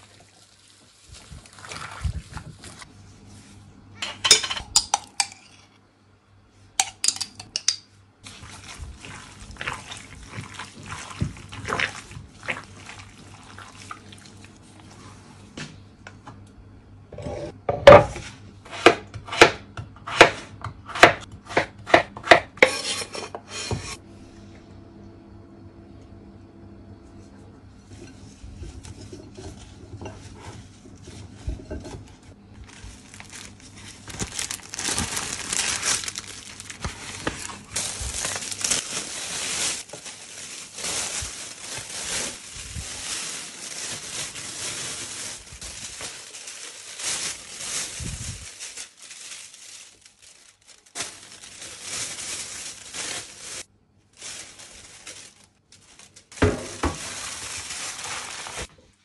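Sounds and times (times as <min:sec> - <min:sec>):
plastic bag crinkling: 0:32.5 - 0:58.7.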